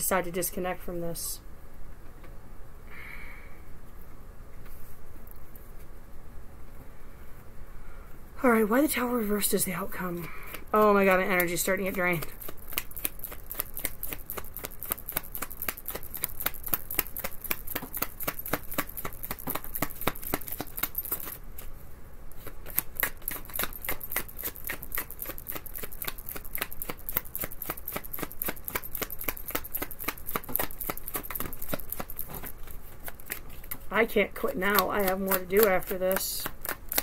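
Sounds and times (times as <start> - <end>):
cards being shuffled: 10.2 - 21.8, 22.4 - 37.0.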